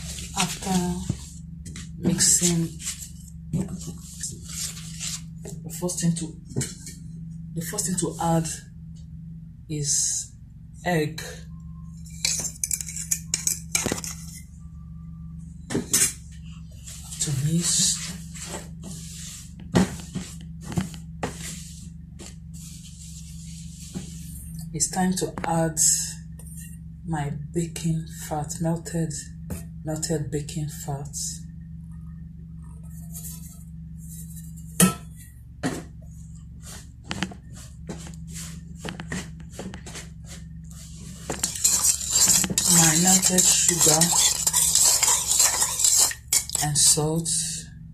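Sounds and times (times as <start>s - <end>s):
steady low hum: 0.0s - 47.9s
spoon scraping plastic bowl: 12.1s - 14.4s, 39.0s - 47.0s.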